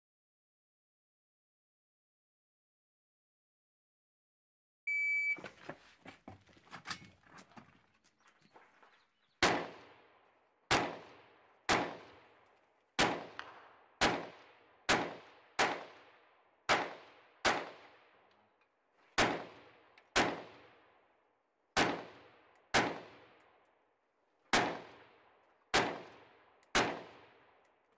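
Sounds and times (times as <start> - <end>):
rifle handling clicks and knocks: 5.4 - 8.4, 11.8 - 13.7, 19.9 - 20.2, 25.4 - 27.9
rifle shots with echo: 9.4 - 18.3, 19.2 - 21.1, 21.7 - 23.6, 24.5 - 27.7.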